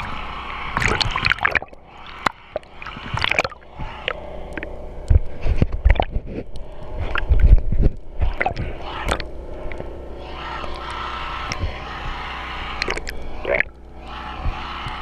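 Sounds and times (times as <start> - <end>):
underwater gurgling bubbles: 0.8 - 9.8
sharp underwater clicks: 0.8 - 9.9, 12.8 - 13.9.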